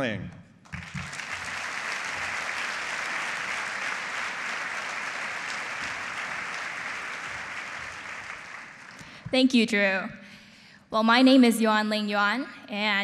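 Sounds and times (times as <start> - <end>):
audience applauding: 0.7 - 9.3.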